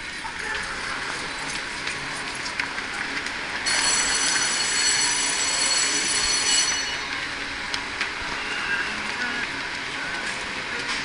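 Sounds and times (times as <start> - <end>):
high-pitched train whine: 3.6 - 10.1.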